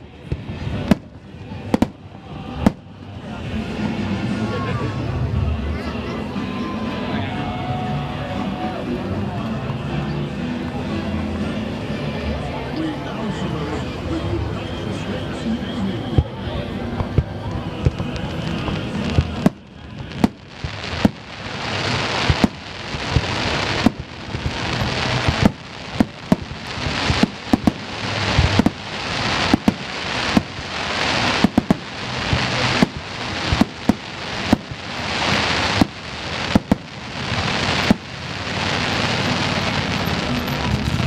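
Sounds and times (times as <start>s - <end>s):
fireworks hiss and crackle: 0.1s - 4.4s, 15.8s - 41.0s
fireworks bangs: 0.2s - 2.9s, 17.0s - 41.0s.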